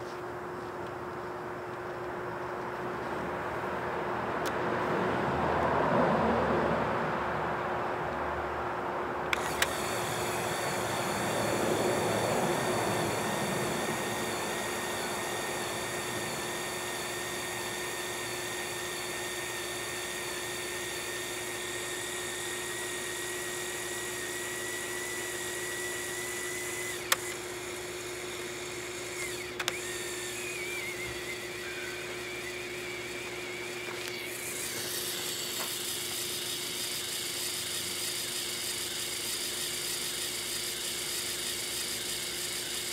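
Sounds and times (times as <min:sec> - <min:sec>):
sharp clicks from controls: 0:04.4 - 0:04.6, 0:09.2 - 0:42.9
electric motor whining: 0:09.3 - 0:42.9.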